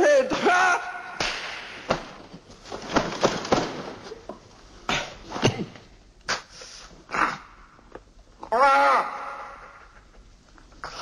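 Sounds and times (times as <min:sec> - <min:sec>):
sharp slap-like knocks: 0:01.2 - 0:02.3.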